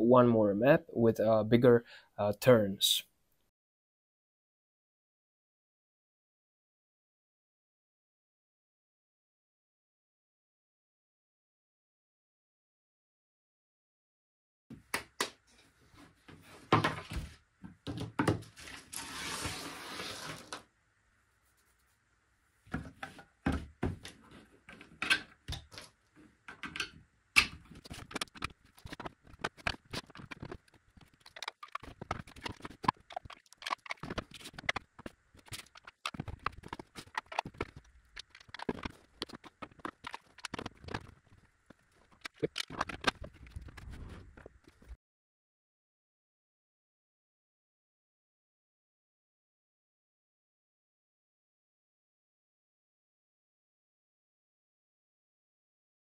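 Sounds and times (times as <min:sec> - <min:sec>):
plastic pieces knocking and clacking: 0:26.5 - 0:41.2, 0:42.2 - 0:43.4.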